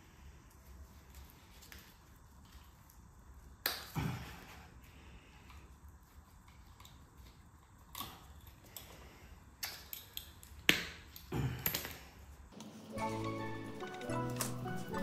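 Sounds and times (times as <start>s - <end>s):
background music: 12.6s - 15.0s
metal tools clinking and scraping: 12.6s - 15.0s.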